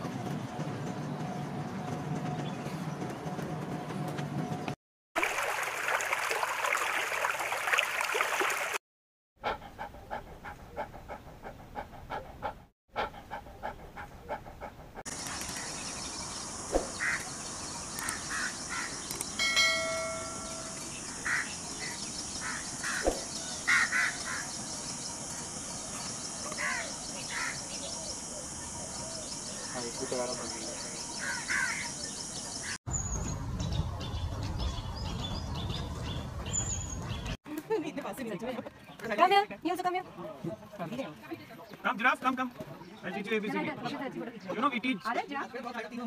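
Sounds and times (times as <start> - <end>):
bird calls: 13.0 - 33.3
insect drone: 15.1 - 19.4.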